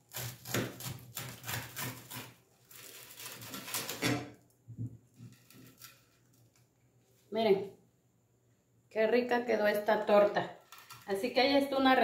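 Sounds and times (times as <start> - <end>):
knife sawing through crusty bread: 0.0 - 4.2.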